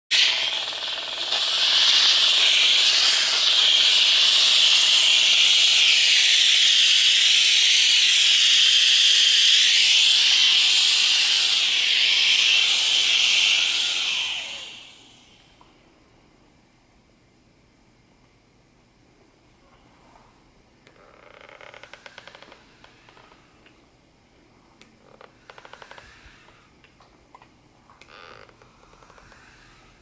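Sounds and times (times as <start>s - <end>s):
steam cleaner hissing: 0.1s - 15.5s.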